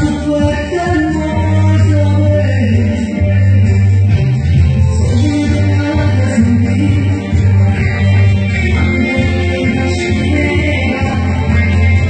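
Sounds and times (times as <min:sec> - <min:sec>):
woman singing into a microphone: 0:00.0 - 0:03.5, 0:05.0 - 0:07.5, 0:08.4 - 0:12.0
backing track with heavy bass: 0:00.0 - 0:12.0.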